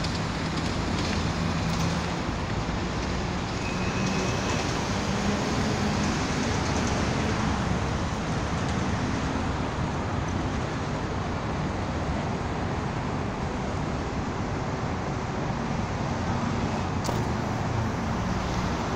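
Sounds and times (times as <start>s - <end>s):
city traffic rumble: 0.0s - 18.9s
sharp click: 17.0s - 17.4s.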